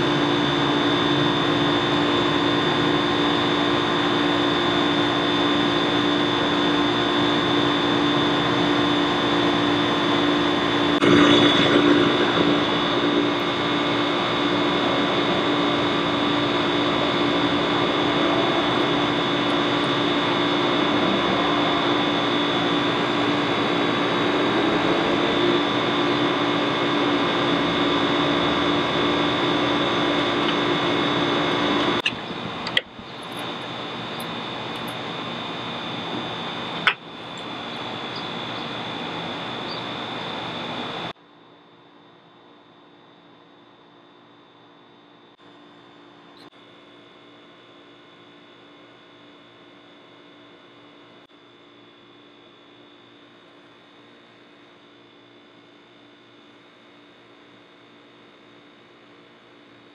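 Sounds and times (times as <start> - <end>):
mechanical drone: 0.0 - 41.1.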